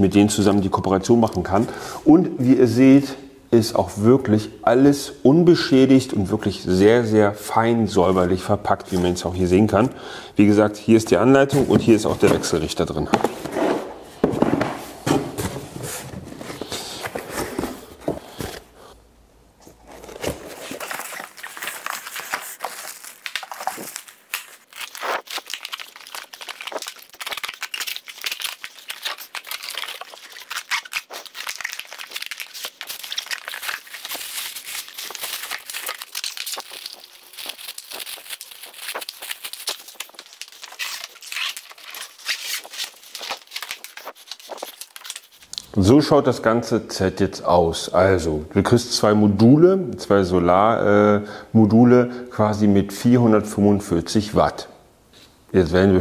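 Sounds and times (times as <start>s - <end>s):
cardboard and packing rustling: 11.4s - 18.9s, 19.6s - 45.5s.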